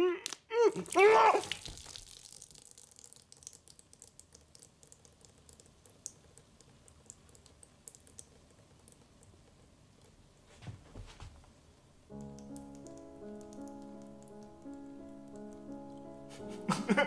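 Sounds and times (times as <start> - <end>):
brittle cup crackling and breaking: 0.2 - 2.5.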